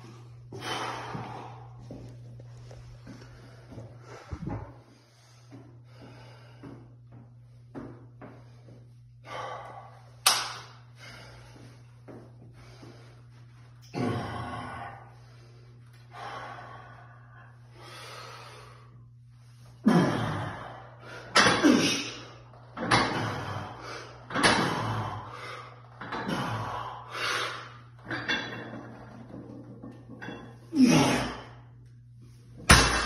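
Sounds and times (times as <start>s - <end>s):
steady low hum: 0.0s - 33.0s
man breathing forcefully: 0.3s - 2.0s, 3.0s - 6.9s, 8.4s - 13.3s, 23.2s - 27.8s.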